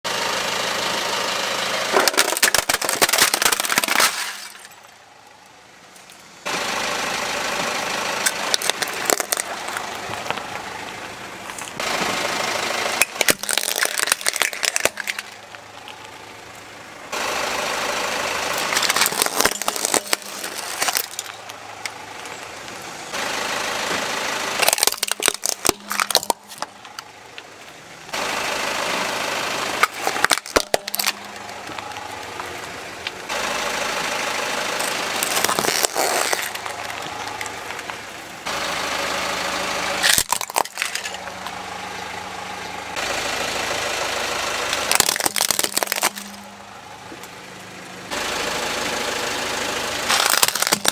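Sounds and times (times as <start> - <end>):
plastic toys cracking: 1.9 - 4.9, 8.2 - 10.4, 13.0 - 16.2, 18.6 - 21.6, 24.6 - 27.1, 29.8 - 32.0, 34.8 - 38.0, 40.0 - 41.3, 44.7 - 46.6, 50.1 - 50.9
tyre crunching grit: 18.6 - 21.4, 35.2 - 37.1.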